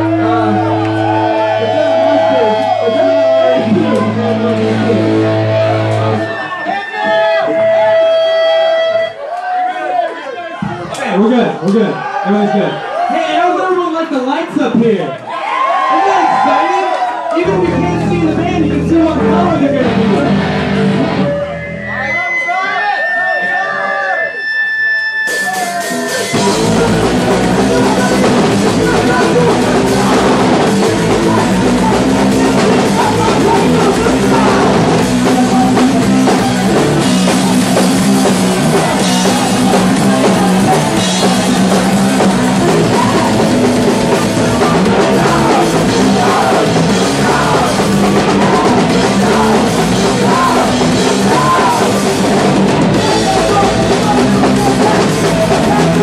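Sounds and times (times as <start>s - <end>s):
electric guitar: 0.0s - 6.3s, 17.4s - 22.1s, 25.4s - 56.0s
drum kit: 25.3s - 56.0s
person singing: 25.6s - 56.0s.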